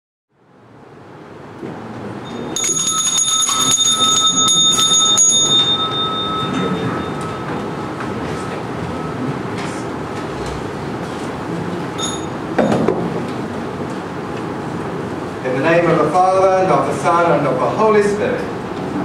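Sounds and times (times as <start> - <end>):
small handbell ringing: 2.2 - 9.2, 12.0 - 12.7.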